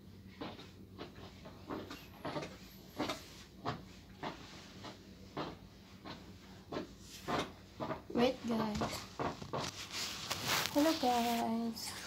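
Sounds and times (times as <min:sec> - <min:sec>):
garment steamer swishes: 0:08.6 - 0:12.0.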